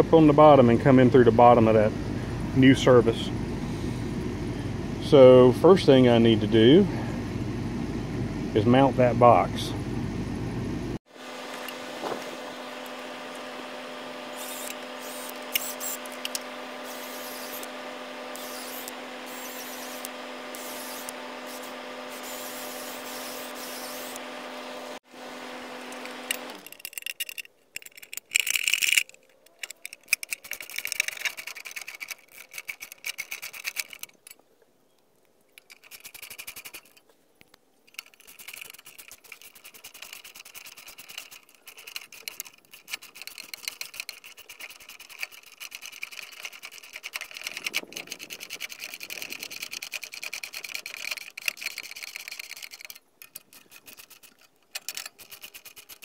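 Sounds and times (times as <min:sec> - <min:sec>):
power drill drilling into wood: 0:14.3 - 0:16.1, 0:16.8 - 0:17.7, 0:18.3 - 0:24.2
metal box clicking and rattling: 0:26.6 - 0:34.3, 0:37.9 - 0:56.0.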